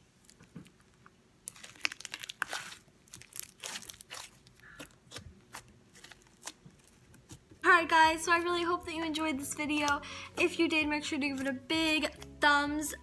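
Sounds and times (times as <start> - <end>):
slime squishing and crackling: 0.2 - 10.0.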